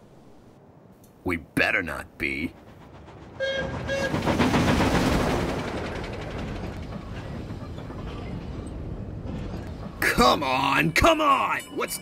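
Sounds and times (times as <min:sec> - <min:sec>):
train wheels rumbling and clattering: 0:01.6 - 0:12.0
train horn toots: 0:03.4 - 0:04.2.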